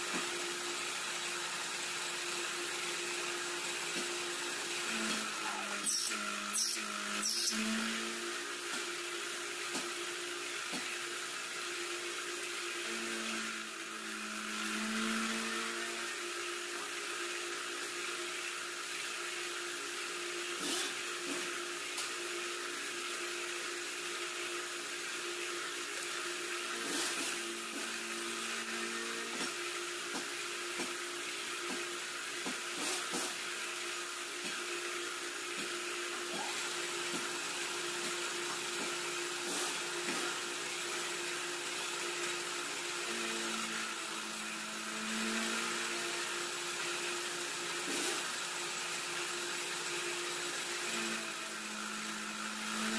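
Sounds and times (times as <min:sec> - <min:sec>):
milling machine humming: 0:00.0 - 0:52.9
boring bar cutting metal: 0:01.1 - 0:10.0.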